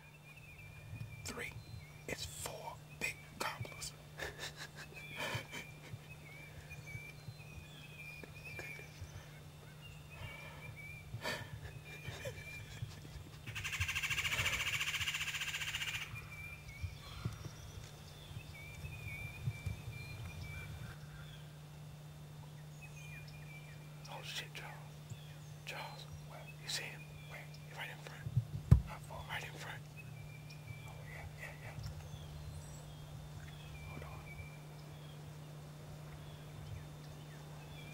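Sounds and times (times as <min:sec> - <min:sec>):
turkey rattling gobble call: 0:13.4 - 0:16.1.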